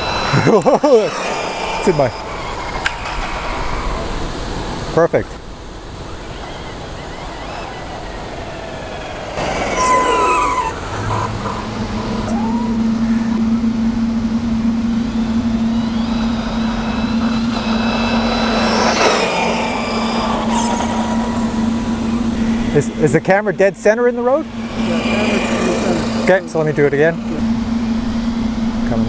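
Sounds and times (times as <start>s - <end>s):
rc buggy motor whine: 0.0s - 29.0s
steady hum: 0.0s - 29.0s.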